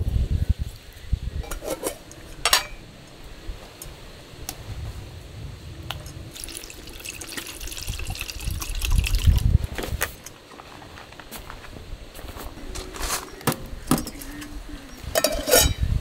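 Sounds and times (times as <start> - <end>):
water pouring into metal pot: 6.3 - 9.5.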